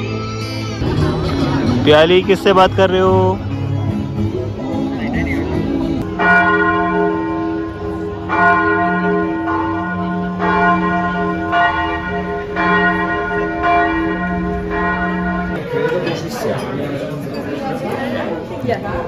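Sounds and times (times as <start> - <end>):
church bell tolling: 6.0 - 15.8.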